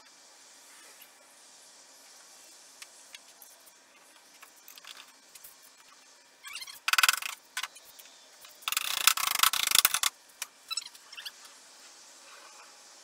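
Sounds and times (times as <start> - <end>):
ratchet wrench clicking: 6.6 - 7.8, 8.6 - 10.5.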